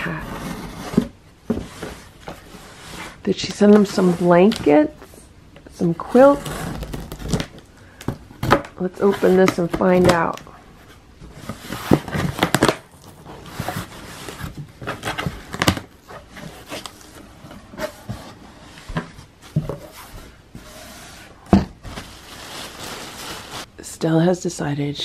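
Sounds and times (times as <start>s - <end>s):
plastic bag rustling: 21.7s - 23.7s.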